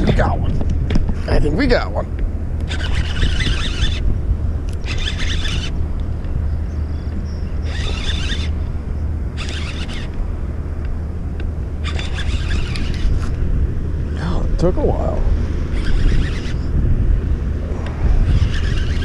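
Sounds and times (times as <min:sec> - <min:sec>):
fishing reel whirring: 0:02.6 - 0:05.8, 0:07.5 - 0:08.7, 0:09.4 - 0:10.2, 0:11.8 - 0:13.3, 0:15.7 - 0:16.7, 0:17.7 - 0:19.0.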